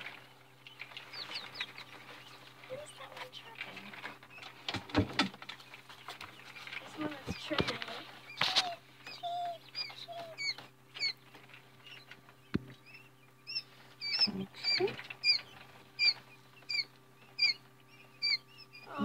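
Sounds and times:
chicks peeping: 0:00.0 - 0:19.0
basket rustling: 0:01.9 - 0:08.8.

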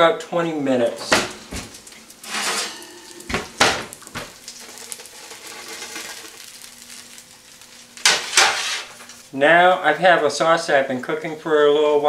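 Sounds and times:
meatballs sizzling in pan: 0:01.1 - 0:09.4.

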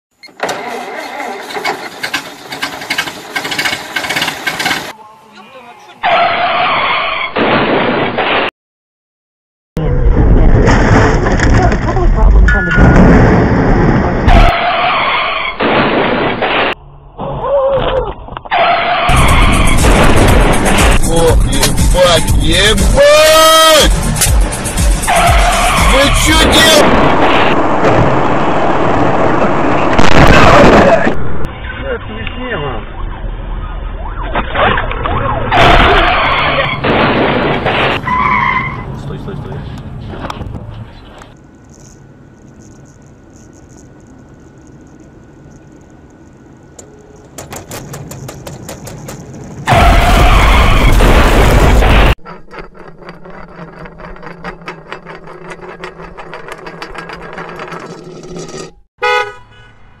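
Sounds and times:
low road rumble: 0:00.1 - 0:07.3, 0:09.8 - 1:00.0
cartoon explosion sound effect: 0:07.3 - 0:08.5, 0:09.8 - 0:17.4, 0:34.2 - 0:38.0, 0:49.7 - 0:52.2
wailing siren tones: 0:32.8 - 0:36.8
low hum: 0:41.4 - 0:50.0.

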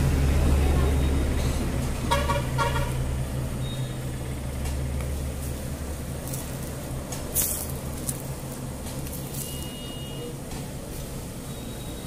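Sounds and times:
steady low rumble: 0:00.0 - 0:09.4.

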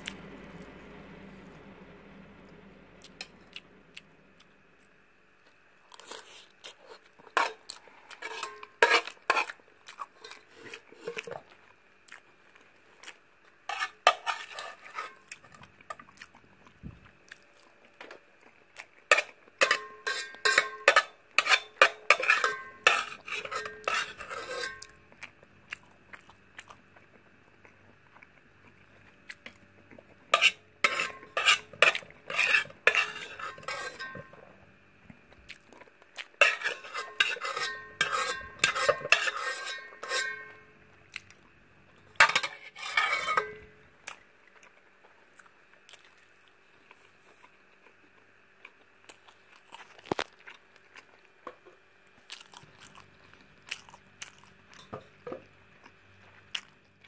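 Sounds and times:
spoon scraping metal pot: 0:03.2 - 0:03.6, 0:08.2 - 0:09.5, 0:13.7 - 0:15.6, 0:19.1 - 0:24.9, 0:30.3 - 0:34.4, 0:36.4 - 0:40.7, 0:42.2 - 0:43.7.

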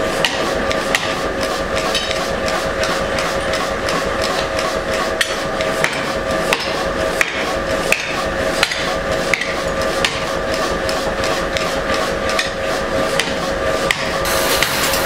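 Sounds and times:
machine humming: 0:00.0 - 0:15.0
power hammer striking steel: 0:05.2 - 0:10.3, 0:13.2 - 0:15.0.

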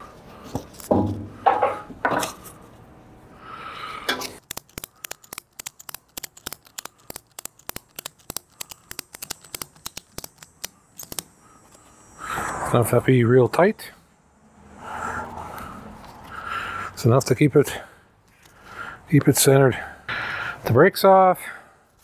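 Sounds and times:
ratchet clicking: 0:04.4 - 0:11.4.

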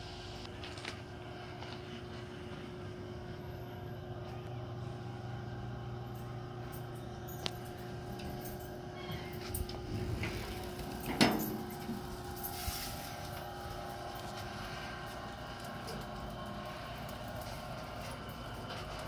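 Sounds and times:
motor humming: 0:03.8 - 0:19.0.

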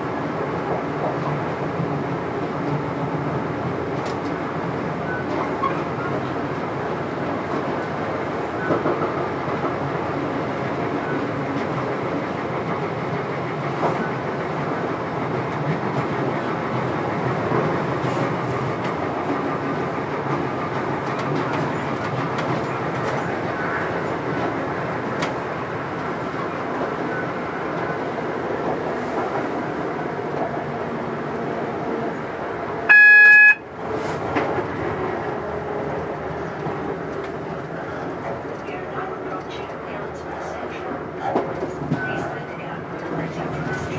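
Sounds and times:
train rumbling on track: 0:00.0 - 0:43.9
train horn blast: 0:32.9 - 0:33.6.

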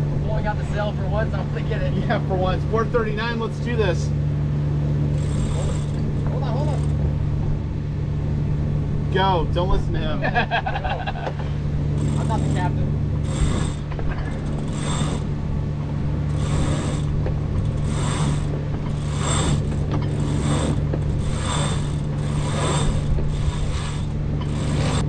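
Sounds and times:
boat engine humming: 0:00.0 - 0:25.0
winch ratcheting: 0:05.1 - 0:07.1, 0:12.0 - 0:15.4, 0:16.2 - 0:25.0
rope whirring through blocks: 0:13.2 - 0:15.3, 0:16.3 - 0:25.0.

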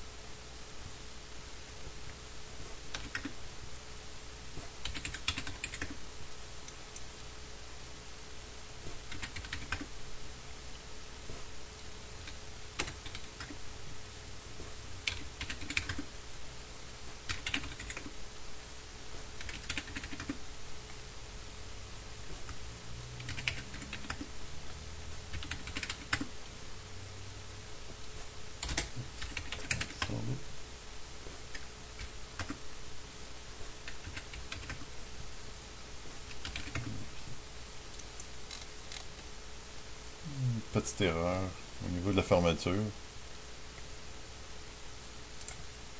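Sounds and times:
computer keyboard typing: 0:02.9 - 0:03.4, 0:04.8 - 0:06.0, 0:09.1 - 0:09.9, 0:12.2 - 0:13.6, 0:15.0 - 0:16.1, 0:17.3 - 0:18.1, 0:19.4 - 0:20.4, 0:23.2 - 0:24.3, 0:25.3 - 0:26.3, 0:28.6 - 0:30.1, 0:31.5 - 0:32.6, 0:33.8 - 0:34.9, 0:36.3 - 0:37.0.

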